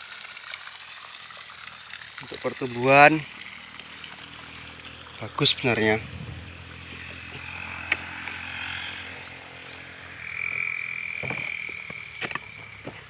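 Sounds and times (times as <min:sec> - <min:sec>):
steady high trill: 0:05.8 - 0:12.9
small animals calling: 0:06.5 - 0:13.0.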